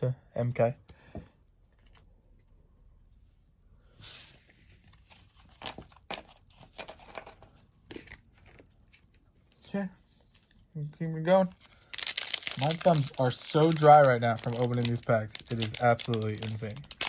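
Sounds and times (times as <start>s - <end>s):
foil pack crinkling and tearing: 11.8s - 17.0s.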